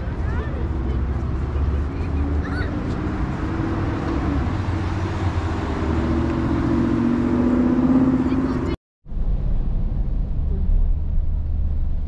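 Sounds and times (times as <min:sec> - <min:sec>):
wind rumble on microphone: 0:09.1 - 0:12.0.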